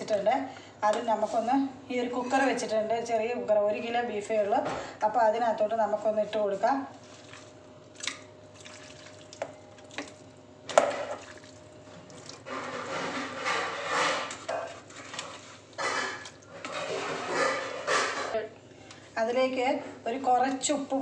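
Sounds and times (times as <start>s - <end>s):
wet squelching and scraping: 6.9s - 18.4s.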